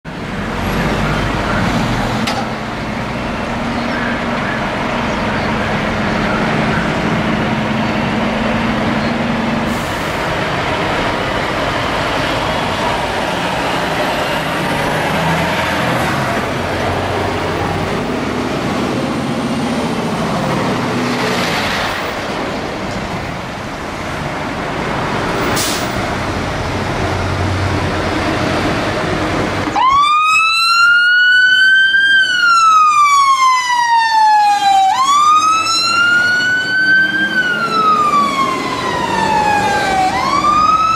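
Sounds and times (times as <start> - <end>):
siren wailing: 29.6 - 40.9.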